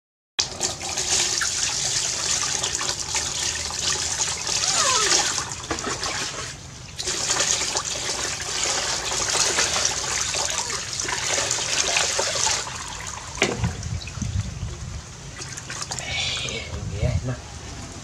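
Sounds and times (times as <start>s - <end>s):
water pouring into basin: 0.4s - 14.4s
water splashing: 2.7s - 14.5s.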